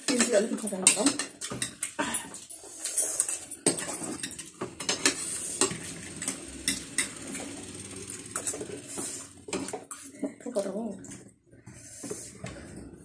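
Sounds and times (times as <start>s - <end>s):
cutlery clinking on plates: 0.0s - 7.2s.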